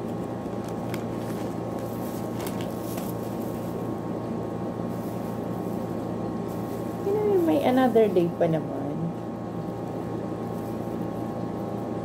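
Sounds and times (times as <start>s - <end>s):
wrappers rustling: 0.2s - 3.8s.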